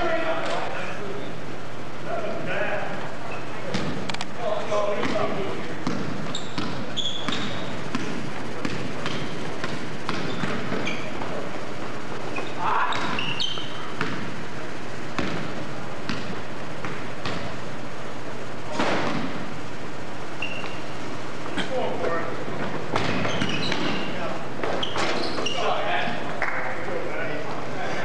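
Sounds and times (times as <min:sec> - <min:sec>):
sneaker squeaks: 0:03.2 - 0:04.1, 0:04.8 - 0:14.4, 0:20.3 - 0:26.3
basketball bouncing on hardwood floor: 0:05.0 - 0:11.9, 0:12.9 - 0:14.3, 0:15.2 - 0:17.5, 0:22.9 - 0:24.8.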